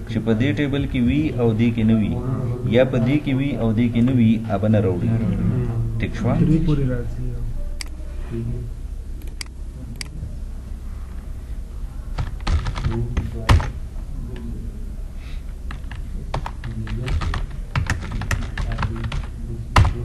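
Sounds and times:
typing on computer keyboard: 12.2 - 13.7, 15.7 - 20.0.

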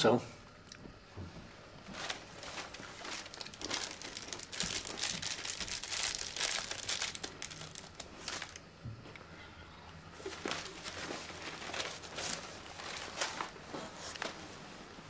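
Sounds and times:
wrapper crinkling and tearing: 1.9 - 8.7, 10.2 - 14.3.

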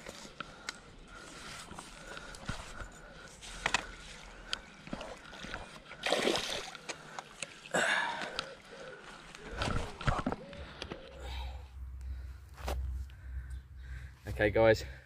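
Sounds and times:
fish thrashing and splashing: 4.9 - 6.9.

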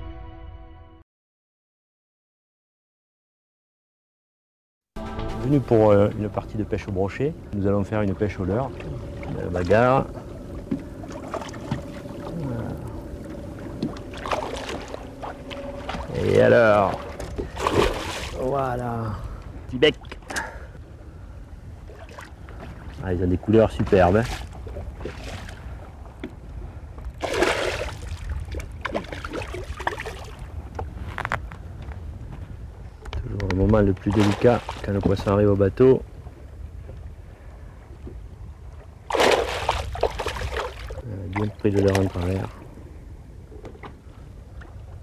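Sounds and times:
faint steady hum: 5.0 - 33.3
low wind rumble: 5.0 - 45.0
water sloshing around a boat: 5.7 - 32.8, 33.6 - 45.0
fish splashing at water surface: 16.9 - 18.4, 27.2 - 30.3, 34.1 - 34.9, 39.1 - 41.0.

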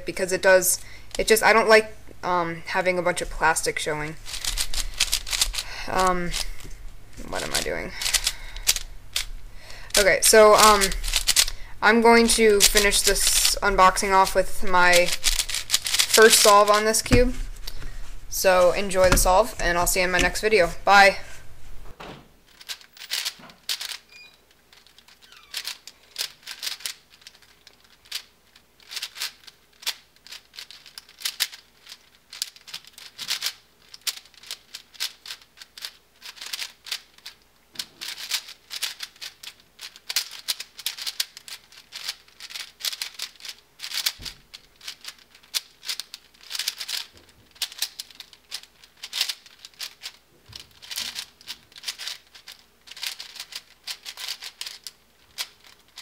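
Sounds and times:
plastic puzzle cube clacking: 4.2 - 11.6, 12.2 - 17.9, 22.5 - 56.0.

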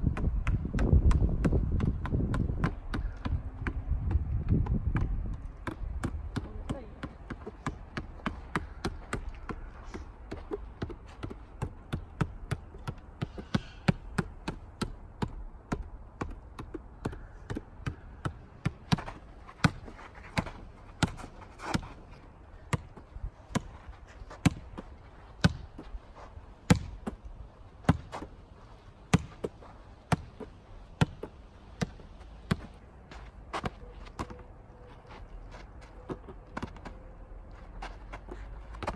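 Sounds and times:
ball hitting concrete wall: 26.6 - 27.2.

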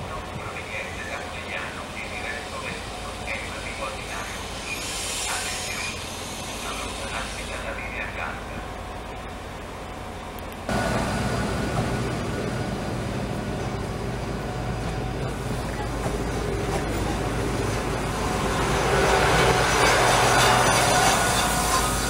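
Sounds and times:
diesel train engine hum: 0.0 - 22.0
train wheel running noise: 9.2 - 22.0.

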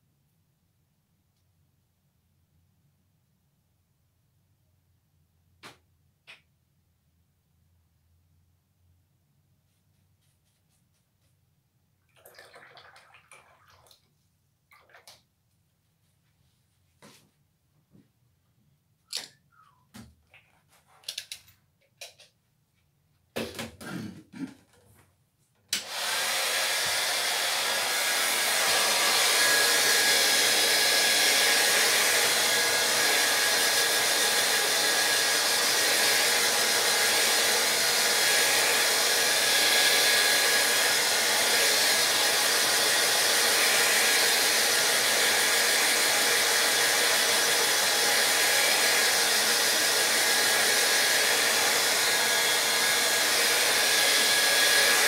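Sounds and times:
hair dryer blowing: 25.8 - 55.0.

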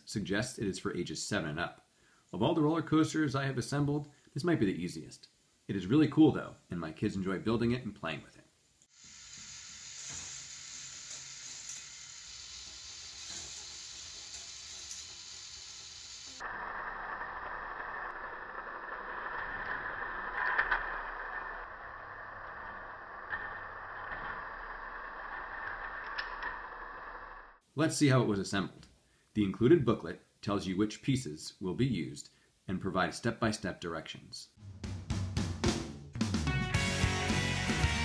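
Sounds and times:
toy motor whirring clatter: 8.9 - 27.6.

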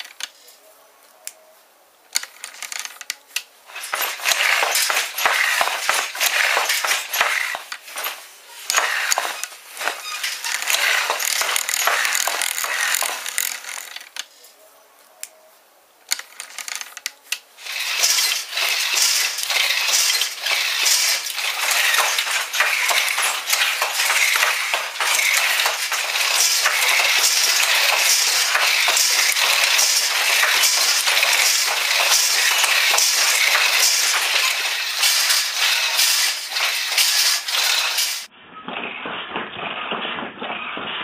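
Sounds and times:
metallic clinking on handloom: 3.7 - 14.0, 17.6 - 38.3.

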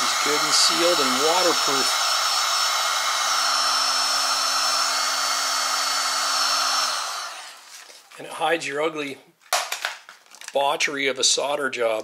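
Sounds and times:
heat gun blowing with whine: 0.0 - 7.7.

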